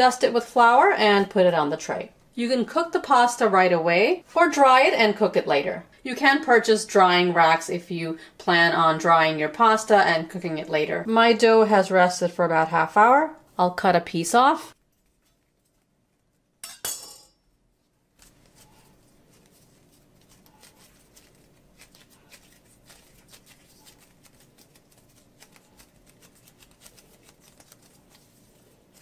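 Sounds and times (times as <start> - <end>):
hands kneading dough: 13.0 - 16.6, 17.7 - 29.0.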